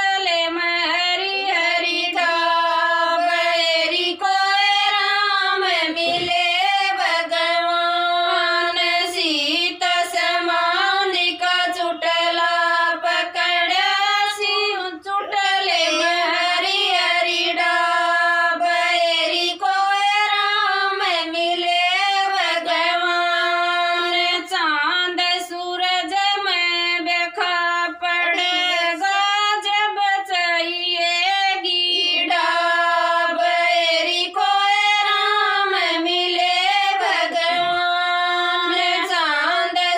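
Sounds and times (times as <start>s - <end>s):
women singing unaccompanied: 0.0s - 39.9s.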